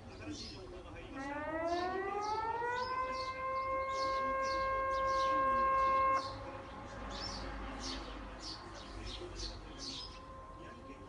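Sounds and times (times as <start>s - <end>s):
small birds chirping: 0.0s - 11.0s
warning siren wailing: 1.1s - 6.6s, 9.7s - 11.0s.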